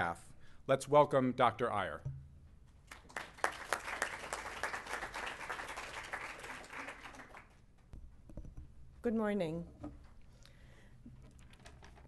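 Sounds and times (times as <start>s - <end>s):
audience applauding: 2.9s - 7.6s.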